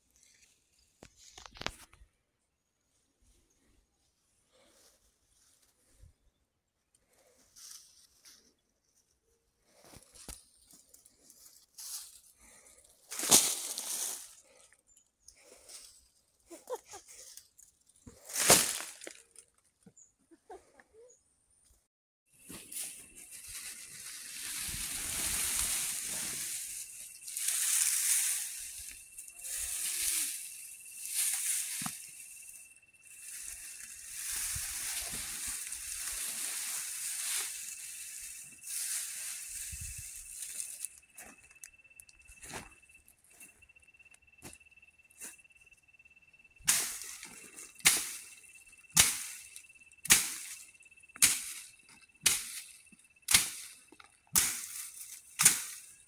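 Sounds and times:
plants rustling on plastic tarp: 11.1s - 14.6s, 22.4s - 32.2s, 33.1s - 40.9s
faint steady high tone: 22.3s - 54.3s.

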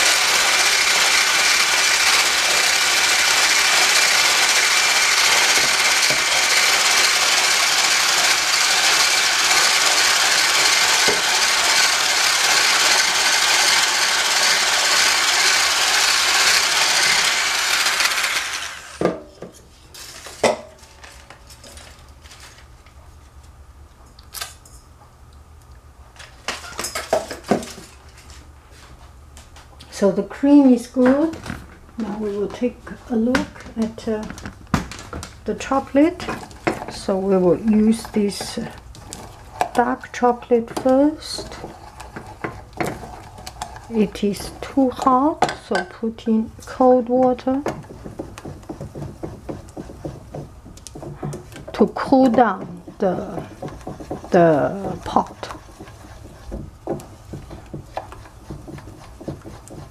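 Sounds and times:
hand blender whining: 0.0s - 19.2s, 35.8s - 45.8s, 46.6s - 59.9s.

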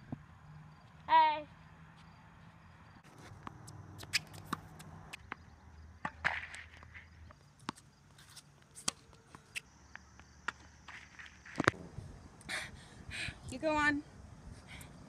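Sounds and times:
footsteps on court: 1.9s - 11.8s.

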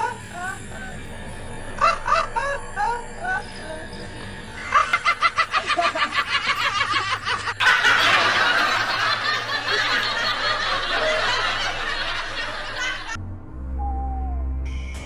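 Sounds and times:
high-pitched laughter: 1.8s - 3.5s, 4.6s - 13.2s
dense laughter: 4.6s - 13.2s.

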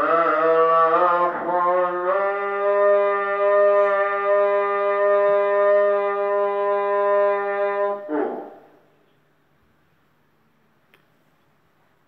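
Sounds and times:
long steady held note: 0.0s - 8.9s.

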